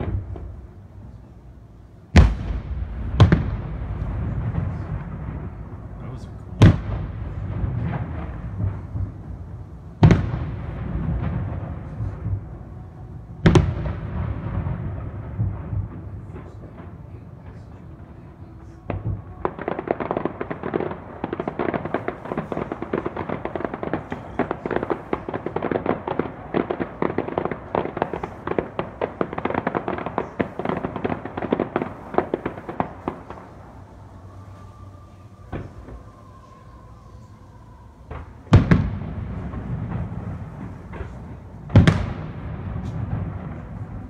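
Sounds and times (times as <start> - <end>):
firework crack: 0.0 - 44.0
fireworks crackling: 0.0 - 44.0
loud firework boom: 2.1 - 12.7, 13.4 - 17.9, 38.1 - 44.0.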